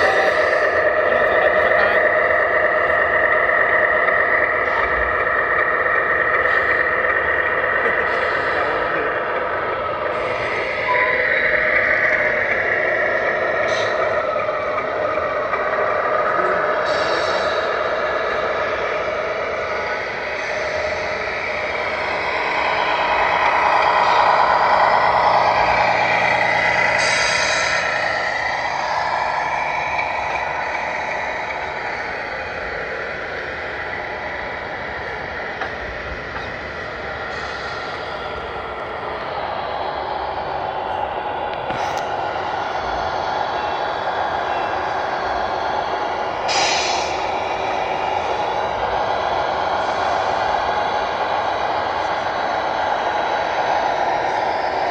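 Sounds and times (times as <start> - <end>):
diesel truck engine sound: 0.0 - 54.9
air-brake release hiss: 46.5 - 47.2.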